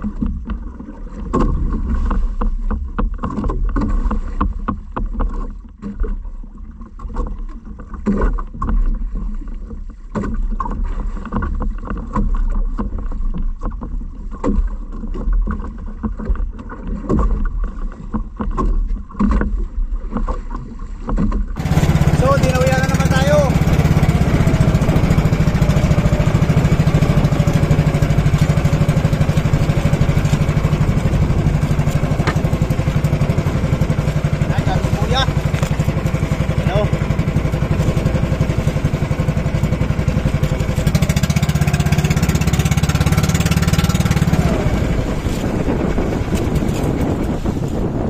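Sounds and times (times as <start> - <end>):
water splashing against boat: 0.0 - 48.0
wind rumbling on microphone: 15.1 - 48.0
knocks on boat hull: 27.6 - 41.9.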